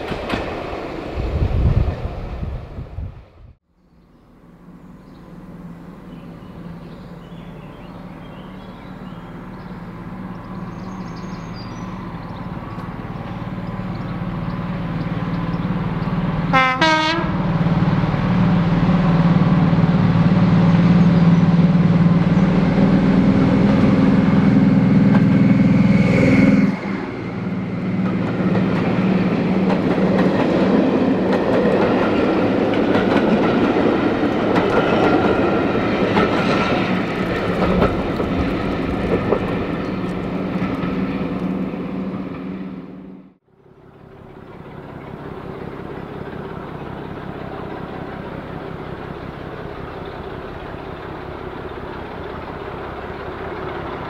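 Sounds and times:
train wheels clickety-clack: 0:00.0 - 0:00.9, 0:25.0 - 0:25.5, 0:27.6 - 0:41.6
diesel locomotive engine: 0:00.0 - 0:54.0
train horn blast: 0:16.5 - 0:17.6.

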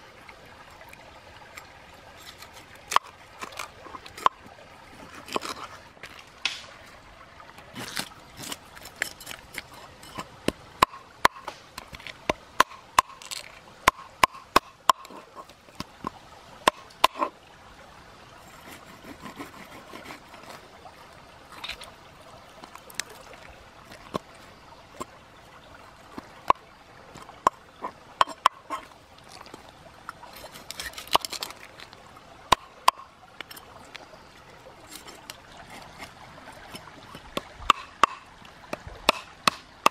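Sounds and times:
knife scraping fish scales: 0:07.8 - 0:10.3, 0:18.5 - 0:20.6, 0:30.2 - 0:31.6.

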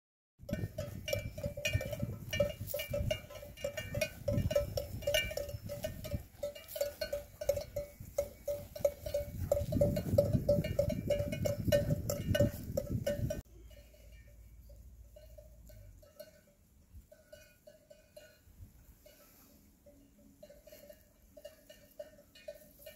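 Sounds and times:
cattle bells clanking: 0:00.4 - 0:22.9.

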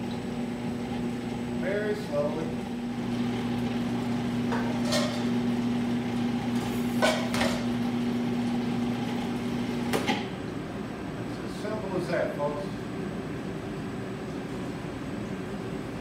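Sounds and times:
food processor motor humming: 0:02.4 - 0:10.1.

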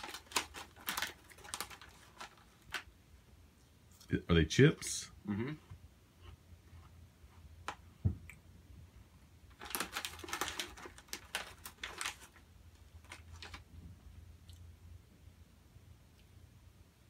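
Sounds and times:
plastic snack bag crinkling: 0:00.0 - 0:02.9, 0:09.5 - 0:13.7
soft thump: 0:08.0 - 0:08.2.

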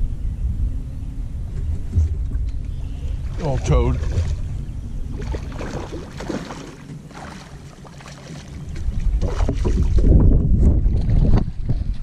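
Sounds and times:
wind buffeting microphone: 0:00.0 - 0:12.0
fish splashing in water: 0:03.1 - 0:10.1.

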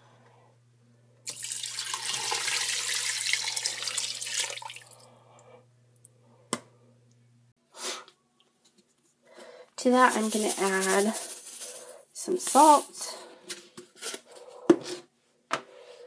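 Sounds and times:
water pouring into pot: 0:01.3 - 0:05.0.

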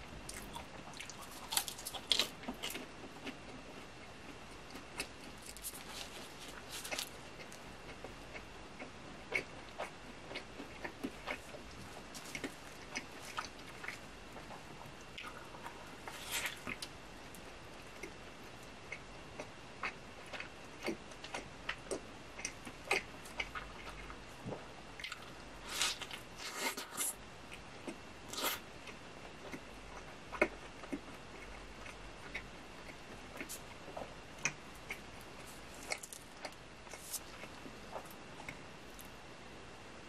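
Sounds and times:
chewing and biting burger: 0:27.8 - 0:38.6.

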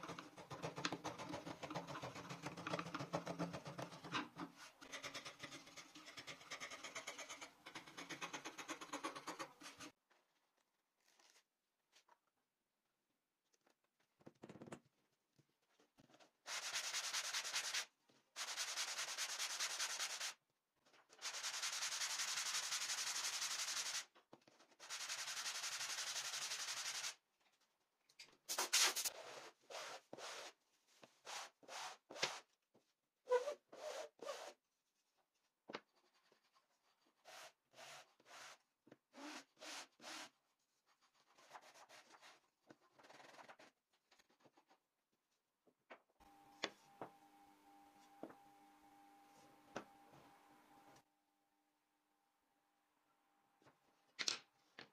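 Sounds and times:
wood rubbing on sandpaper: 0:16.5 - 0:20.4, 0:21.2 - 0:24.0, 0:24.8 - 0:27.2, 0:33.3 - 0:34.6.

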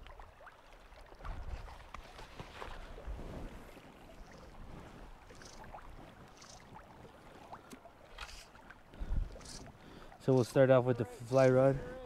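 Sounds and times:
flowing river water: 0:00.0 - 0:12.0
wind rumble on microphone: 0:01.2 - 0:06.2
small ticks: 0:05.3 - 0:05.7, 0:06.3 - 0:06.7, 0:09.4 - 0:09.7.

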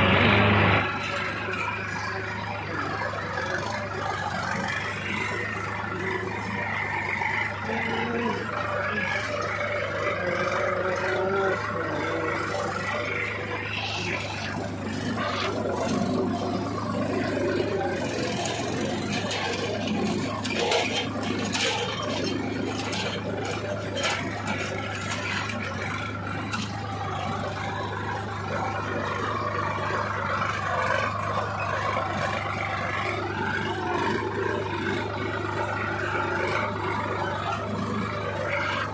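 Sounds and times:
tractor engine under load: 0:00.0 - 0:38.9
metal frame rattling and scraping: 0:03.4 - 0:27.1.

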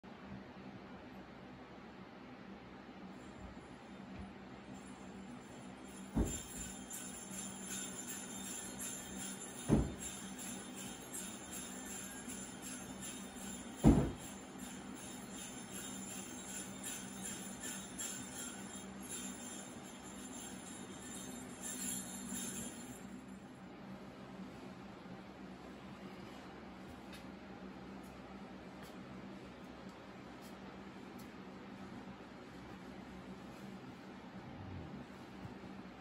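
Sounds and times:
sleigh bells jingling: 0:04.7 - 0:23.4
heavy thumps: 0:06.2 - 0:06.8, 0:09.6 - 0:10.2, 0:13.8 - 0:14.3.

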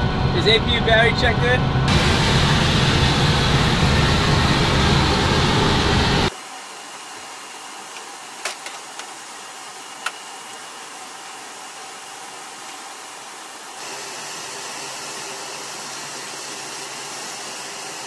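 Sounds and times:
loud rushing cockpit noise: 0:00.0 - 0:06.3.

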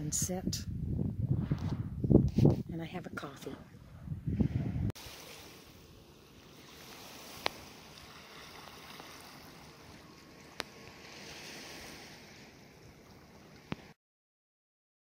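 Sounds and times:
small waves on a cobble beach: 0:05.0 - 0:14.0.

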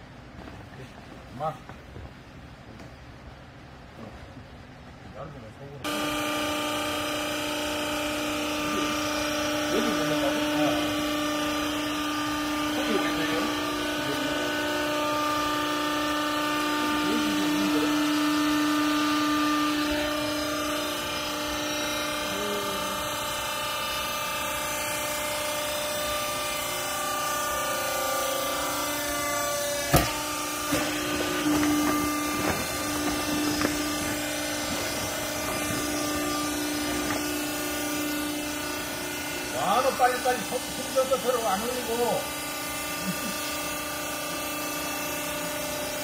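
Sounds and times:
baler motor and pump humming: 0:00.0 - 0:46.0
sharp knocks: 0:29.8 - 0:37.4.

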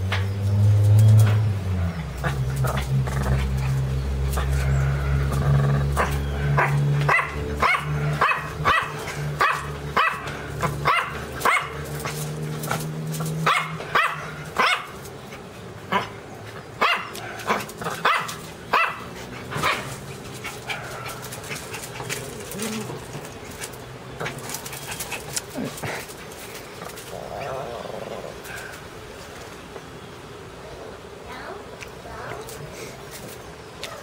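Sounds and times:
steady low hum: 0:00.0 - 0:34.0
small dog barking: 0:06.0 - 0:11.9, 0:13.4 - 0:15.0, 0:16.8 - 0:20.0.

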